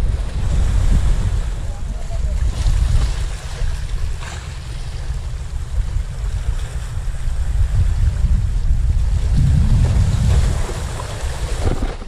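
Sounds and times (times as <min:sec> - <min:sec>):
wind buffeting microphone: 0:00.0 - 0:12.0
sea waves splashing on rocks: 0:09.2 - 0:12.0.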